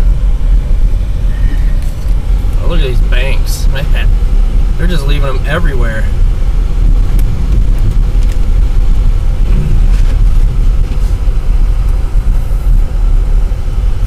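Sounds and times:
car driving through snow: 0:06.0 - 0:14.0.

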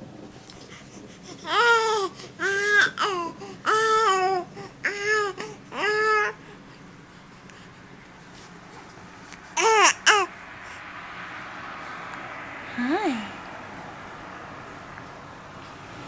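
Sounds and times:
baby cooing and babbling: 0:01.3 - 0:06.4, 0:09.6 - 0:10.4.

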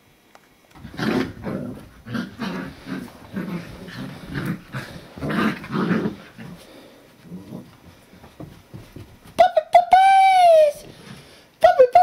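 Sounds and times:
puppies growling: 0:00.8 - 0:07.8.

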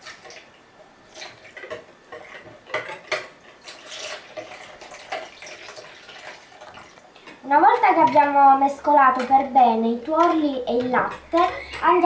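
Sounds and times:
wire whisk beating in plastic bowl: 0:07.5 - 0:12.0.

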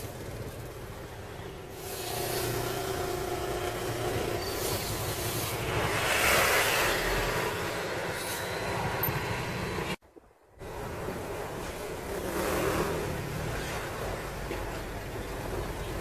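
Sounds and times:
vehicle engine hum and road noise: 0:00.0 - 0:16.0.

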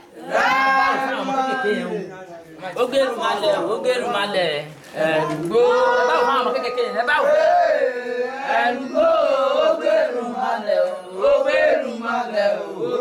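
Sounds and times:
voices chanting a ritual song: 0:00.0 - 0:02.1, 0:04.9 - 0:13.0.

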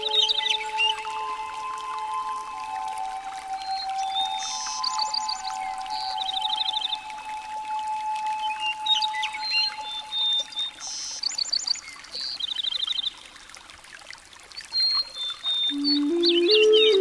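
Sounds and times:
birds chirping and trilling: 0:00.0 - 0:01.5, 0:08.0 - 0:13.2, 0:14.7 - 0:17.0
trickling water: 0:00.0 - 0:17.0.

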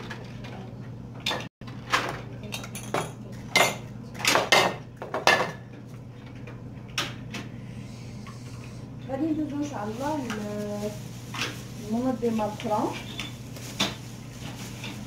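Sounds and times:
steady low hum: 0:04.8 - 0:12.2.

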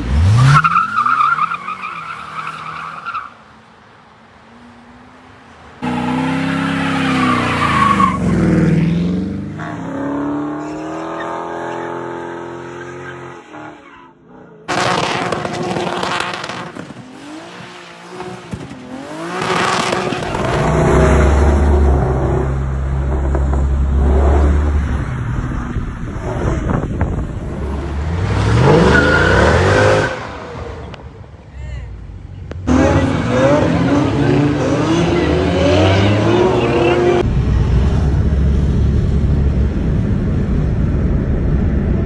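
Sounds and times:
tires squealing: 0:00.0 - 0:03.5, 0:05.8 - 0:31.0, 0:32.7 - 0:37.2
car engine revving: 0:05.8 - 0:13.6, 0:14.2 - 0:30.9, 0:32.6 - 0:41.2
deep engine rumble: 0:37.2 - 0:42.0.

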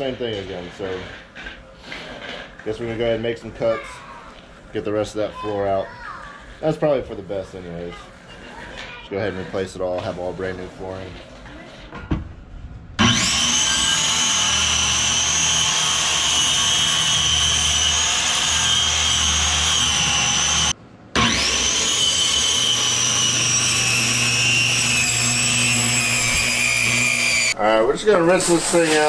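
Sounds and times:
circular saw cutting wood: 0:00.0 - 0:03.2, 0:13.0 - 0:29.0.

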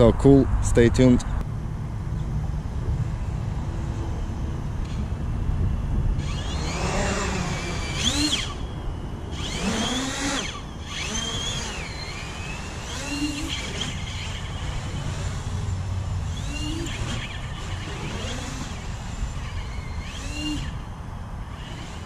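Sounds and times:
low rumble: 0:00.0 - 0:13.0
quadcopter motors whining: 0:00.0 - 0:22.0.

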